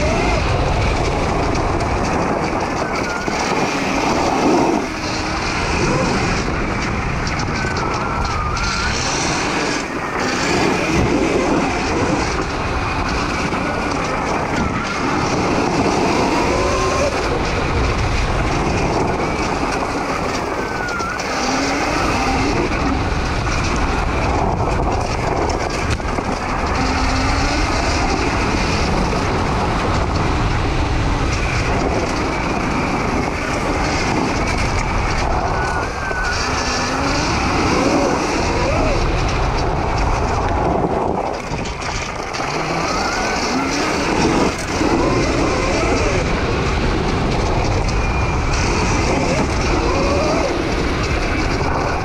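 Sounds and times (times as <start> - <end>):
electric motor whine: 0.0 - 52.0
tyres on gravel trail: 0.0 - 52.0
wind rush: 0.0 - 52.0.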